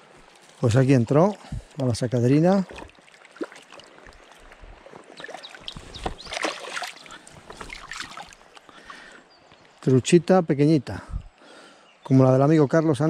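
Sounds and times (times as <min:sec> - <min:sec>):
water splashing and trickling: 0:00.0 - 0:10.0.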